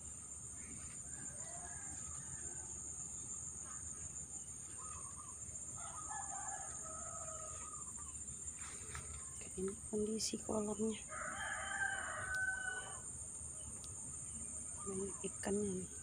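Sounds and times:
insects droning: 0.0s - 16.0s
rooster crowing: 1.0s - 2.9s, 5.8s - 8.1s, 11.1s - 13.1s.

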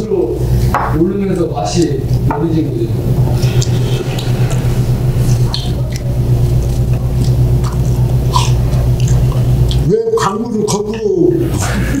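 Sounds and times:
people eating: 0.0s - 12.0s
low rumble: 1.7s - 9.6s.

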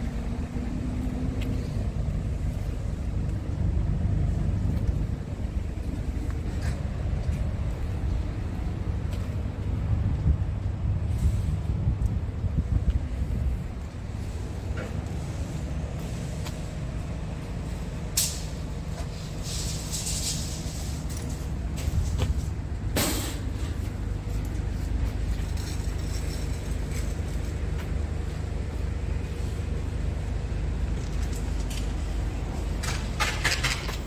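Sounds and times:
diesel truck idling: 0.0s - 34.0s.

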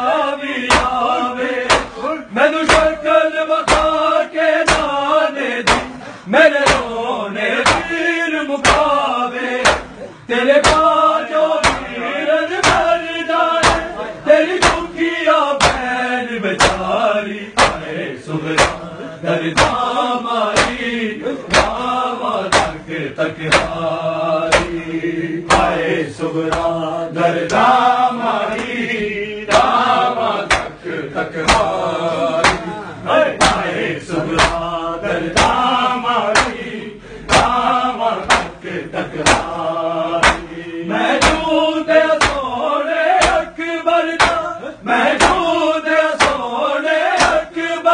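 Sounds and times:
men chanting together: 0.0s - 47.9s
hands slapping chests: 0.7s - 2.0s, 2.6s - 3.0s, 3.6s - 5.0s, 5.6s - 6.0s, 6.6s - 7.0s, 7.6s - 8.0s, 8.6s - 9.0s, 9.6s - 10.0s, 10.6s - 11.0s, 11.6s - 12.0s, 12.6s - 13.0s, 13.6s - 13.9s, 14.6s - 14.9s, 15.6s - 15.9s, 16.6s - 16.9s, 17.6s - 17.9s, 18.5s - 18.8s, 19.5s - 19.9s, 20.6s - 20.8s, 21.5s - 21.8s, 22.5s - 22.8s, 23.5s - 23.8s, 24.5s - 24.8s, 25.5s - 25.8s, 26.4s - 26.8s, 28.5s - 28.8s, 29.5s - 30.8s, 31.4s - 31.8s, 32.4s - 32.7s, 33.4s - 33.7s, 34.3s - 34.7s, 35.3s - 36.6s, 37.3s - 37.6s, 38.2s - 38.6s, 39.2s - 40.5s, 41.1s - 41.5s, 42.1s - 42.5s, 43.2s - 43.5s, 44.2s - 44.5s, 45.1s - 45.5s, 46.1s - 46.5s, 47.1s - 47.4s.

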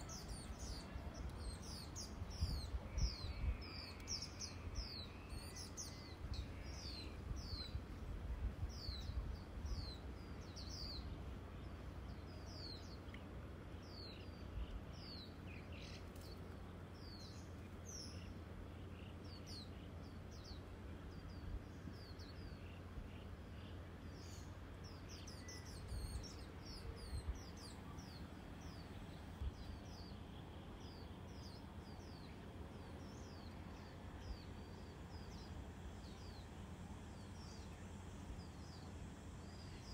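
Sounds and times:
wind rumble on microphone: 0.0s - 12.8s, 24.9s - 30.1s
small bird chirping: 22.0s - 36.5s.

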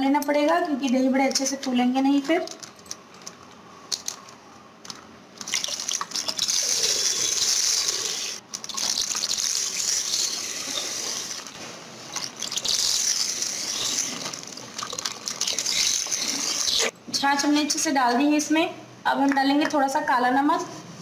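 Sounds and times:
liquid pouring into bowl: 5.4s - 16.9s.

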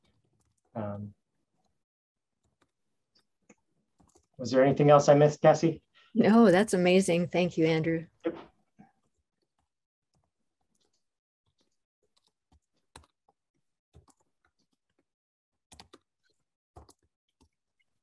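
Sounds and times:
keyboard and mouse clicks: 2.4s - 4.4s, 9.5s - 13.2s, 14.0s - 15.0s, 15.7s - 17.6s.

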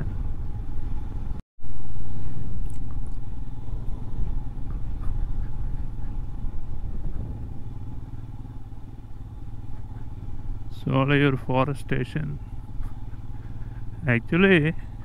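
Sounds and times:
motorcycle engine rumble: 0.0s - 15.0s
wind on microphone: 3.7s - 8.2s.

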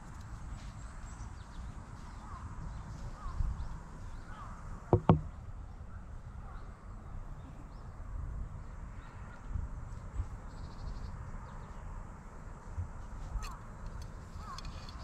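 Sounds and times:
low rumble of handling noise: 13.0s - 15.0s.

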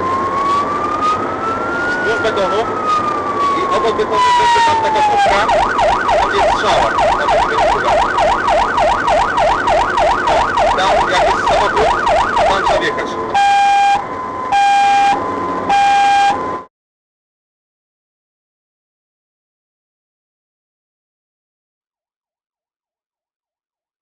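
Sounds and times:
emergency vehicle siren: 0.0s - 16.7s.

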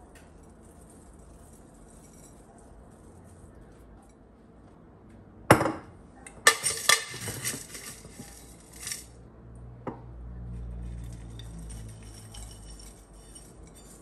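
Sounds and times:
metal scoop rattling in glass jar: 0.0s - 3.8s, 6.3s - 9.2s, 10.8s - 14.0s.

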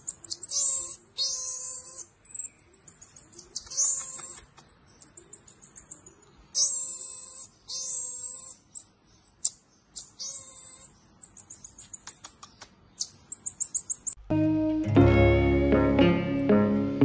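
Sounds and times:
marmoset high-pitched whistles: 0.0s - 6.0s, 6.6s - 14.2s
marmoset short chirps: 0.0s - 14.2s.

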